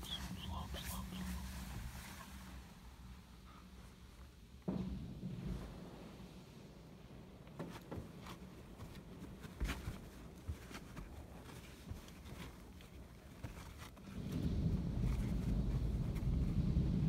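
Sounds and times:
low rumble: 14.0 - 17.0.

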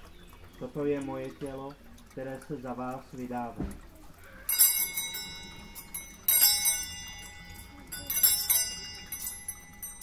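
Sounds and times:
altar bells jangling: 4.4 - 10.0.

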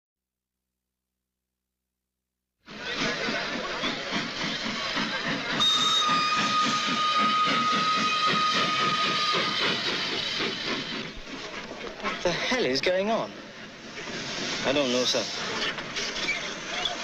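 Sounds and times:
steam locomotive chuffing and hissing: 2.7 - 17.0
steam whistle: 5.6 - 9.8.

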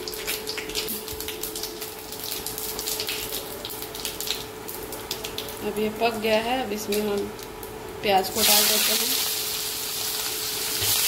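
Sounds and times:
spices sizzling in hot oil: 6.8 - 11.0.

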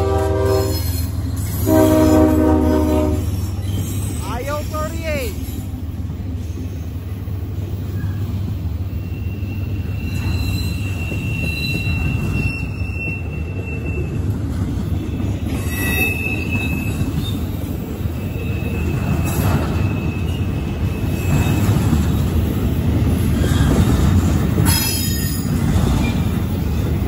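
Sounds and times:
train wheels rumbling on rails: 0.0 - 27.0
high wheel squeals: 0.4 - 5.8, 7.8 - 22.4.

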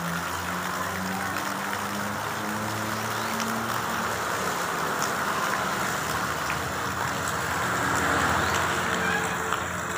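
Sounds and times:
heavy rain on road: 0.0 - 9.9
motorbike passing on wet road: 0.0 - 9.9.

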